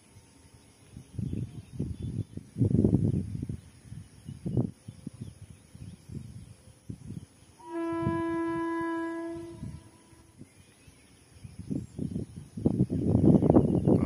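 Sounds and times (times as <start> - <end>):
train horn blast: 7.6 - 10.4.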